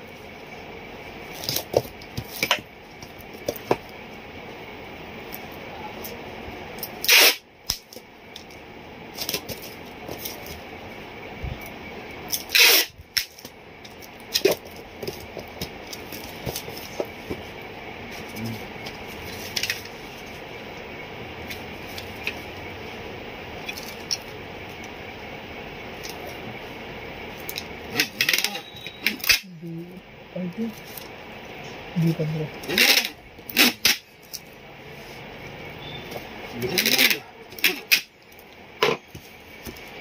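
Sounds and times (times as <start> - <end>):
packing tape ripping: 7.0 - 7.8, 12.3 - 13.4
cardboard and paper rustling: 14.4 - 20.3.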